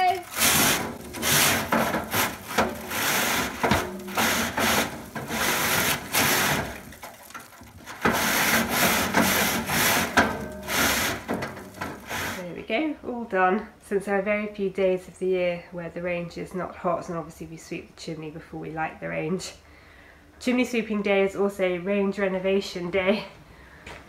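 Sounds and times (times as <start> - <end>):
brush scraping inside flue: 0.0 - 12.6.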